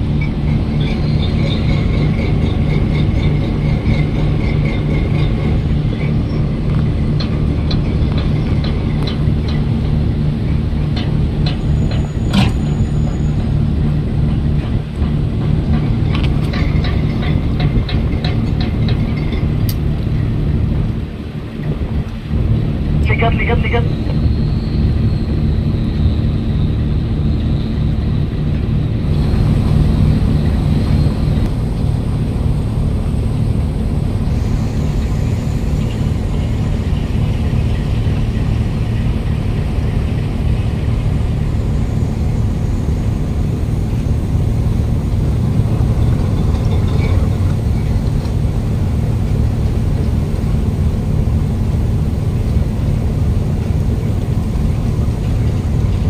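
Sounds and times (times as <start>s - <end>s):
diesel engine drone: 0.0s - 56.0s.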